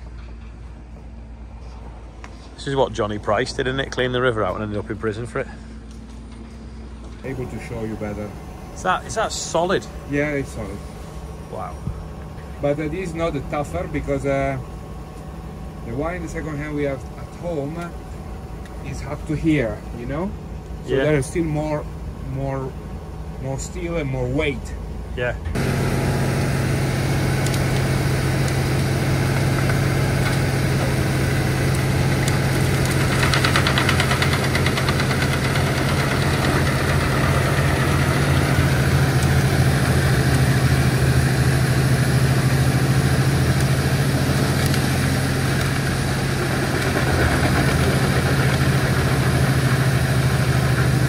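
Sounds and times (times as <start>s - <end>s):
tractor engine running: 0.0s - 51.0s
wood chipper chipping brash: 25.6s - 51.0s.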